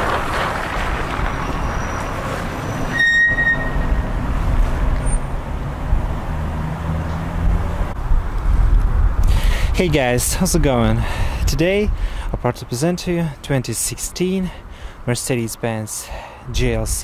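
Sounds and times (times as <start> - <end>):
suv engine low rumble: 0.0 - 12.4.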